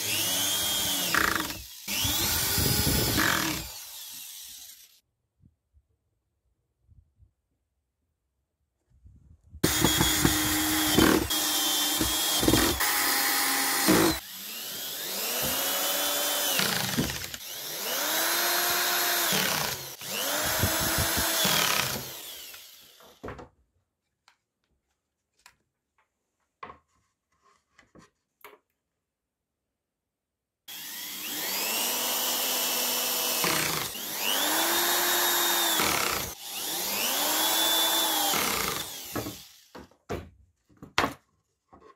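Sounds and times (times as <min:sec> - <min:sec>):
electric drill driving screws: 0:00.0 - 0:05.0, 0:09.6 - 0:23.2, 0:30.7 - 0:39.8.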